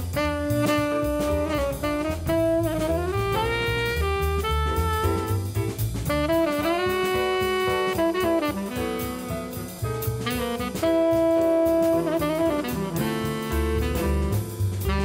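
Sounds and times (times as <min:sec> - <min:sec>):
drum kit: 0:00.0 - 0:15.0
jazz horn holding long notes: 0:00.0 - 0:15.0.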